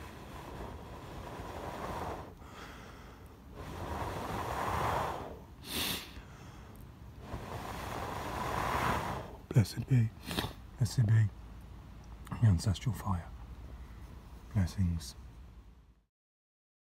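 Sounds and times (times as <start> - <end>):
person blowing on a coal: 0.0 - 6.2, 7.2 - 9.5
sharp breath: 0.0 - 9.4, 10.2 - 10.6.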